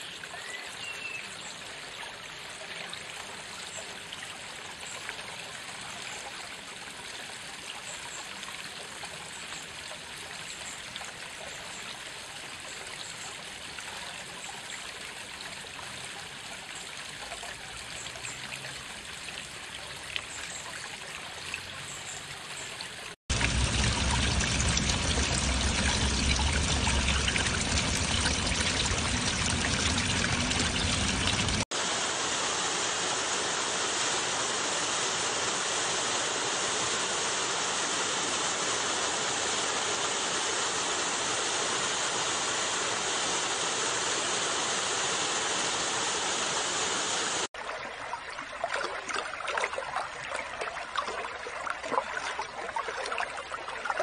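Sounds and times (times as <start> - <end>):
babbling stream: 0.0 - 54.0
steady rush of water: 21.0 - 54.0
water pouring into pool: 22.9 - 34.8, 47.2 - 54.0.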